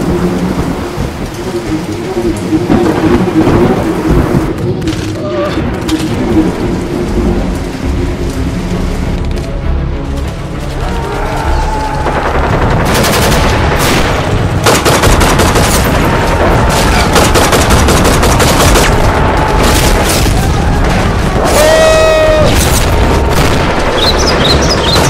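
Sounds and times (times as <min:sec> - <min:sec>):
rapid rifle and machine-gun fire: 0:11.9 - 0:21.6, 0:22.5 - 0:25.0.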